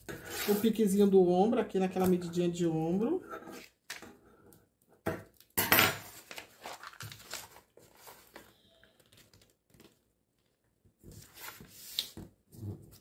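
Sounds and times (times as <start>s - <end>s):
paper rustling and crinkling: 6.0s - 13.0s.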